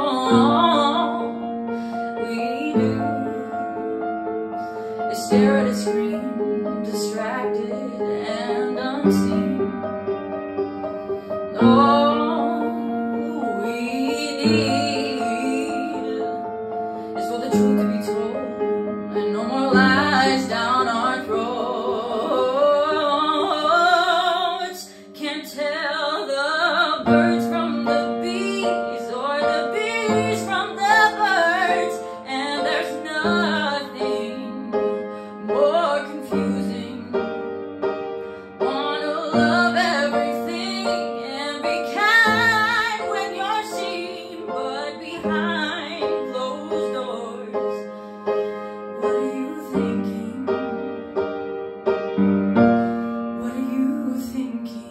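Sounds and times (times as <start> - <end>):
piano: 0.0 - 54.9
girl singing with vibrato: 38.6 - 47.8, 49.0 - 50.9.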